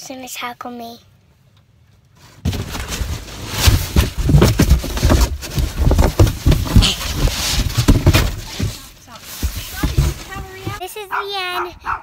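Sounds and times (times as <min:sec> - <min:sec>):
scuffling and rustling: 0:02.2 - 0:11.1
microphone knocked and rubbed: 0:02.4 - 0:10.8
dull thumps: 0:02.4 - 0:10.9.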